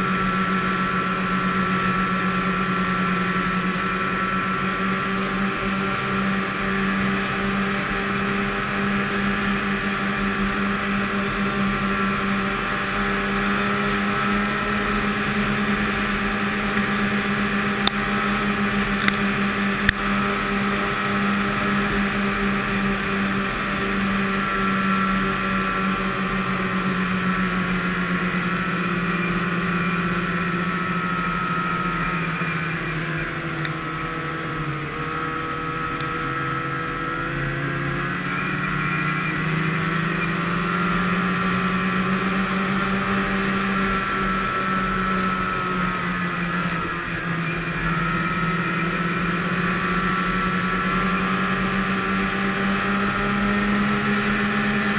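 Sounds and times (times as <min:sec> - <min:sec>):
snowmobile engine running: 0:00.0 - 0:54.9.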